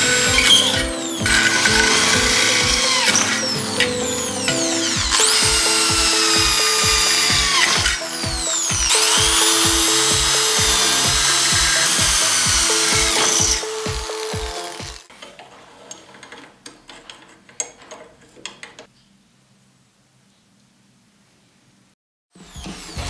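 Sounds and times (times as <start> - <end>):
background music with beat: 0.0 - 15.1
electric drill drilling steel: 0.0 - 15.1, 22.4 - 23.0.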